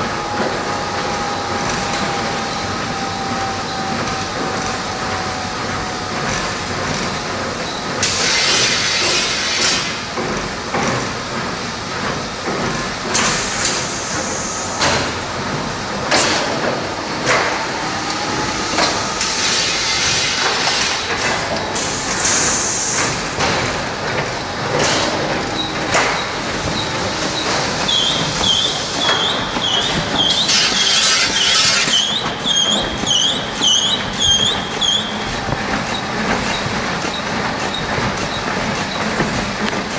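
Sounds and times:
steady machine noise: 0:00.0 - 0:39.9
high squeak: 0:25.6 - 0:35.2.

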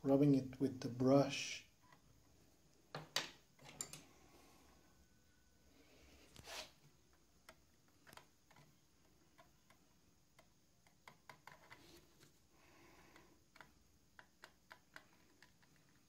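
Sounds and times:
small clicks: 0:07.4 - 0:11.8
brush scrubbing plastic part: 0:10.9 - 0:12.3.

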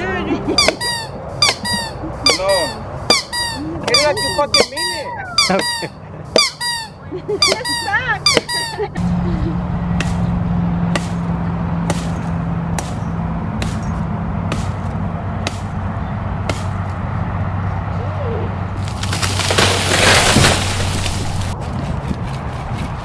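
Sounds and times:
machete chopping wood: 0:10.0 - 0:10.3, 0:10.9 - 0:13.0, 0:13.6 - 0:15.8, 0:16.4 - 0:16.9, 0:19.0 - 0:21.6
rustling and cracking wood: 0:18.8 - 0:23.0.

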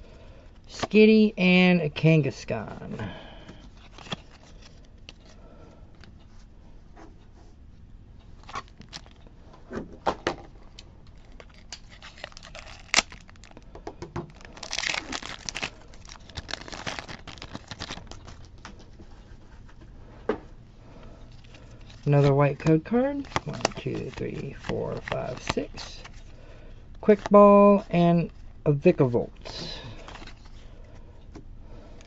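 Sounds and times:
cards rustling: 0:02.3 - 0:05.4, 0:08.4 - 0:09.2, 0:10.7 - 0:19.8, 0:21.3 - 0:26.4, 0:27.0 - 0:31.0
foil wrapper crinkling and tearing: 0:08.4 - 0:09.2, 0:11.1 - 0:18.7, 0:23.0 - 0:26.3.

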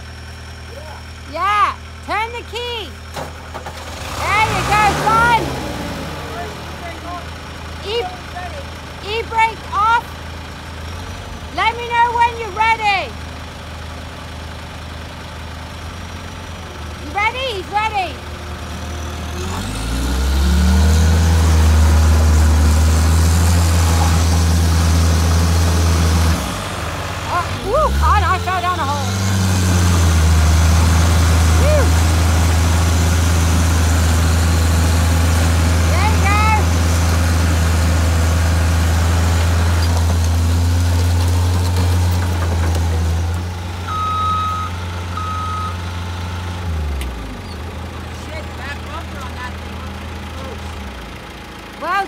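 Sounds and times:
heavy equipment engine revving: 0:00.0 - 0:12.3, 0:13.8 - 0:52.0
short electronic beeps: 0:43.9 - 0:46.6.

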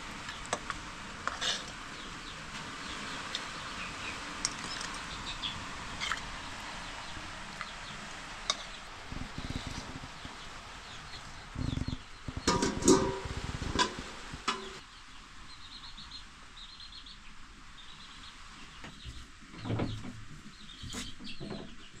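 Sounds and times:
bird chirping: 0:01.9 - 0:12.6, 0:14.5 - 0:22.0.

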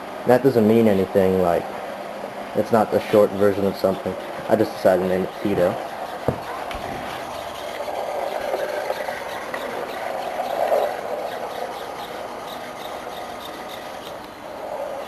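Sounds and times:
servo motors whirring: 0:03.0 - 0:15.0.

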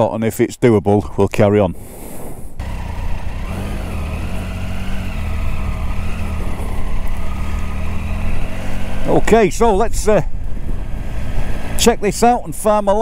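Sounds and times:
motorcycle engine at low revs: 0:02.6 - 0:12.9.

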